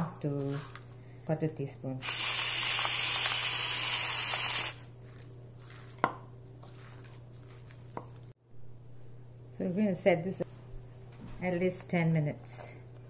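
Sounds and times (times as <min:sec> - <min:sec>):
salt grinder grinding: 0:02.0 - 0:08.2.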